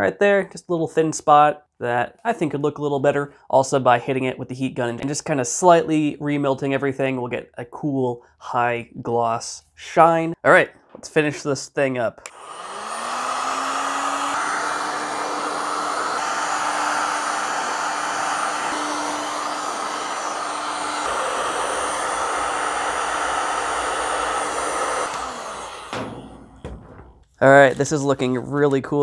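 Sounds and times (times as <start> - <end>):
heat gun fan whine: 12.2 - 27.2
rush of hot air: 12.4 - 26.1.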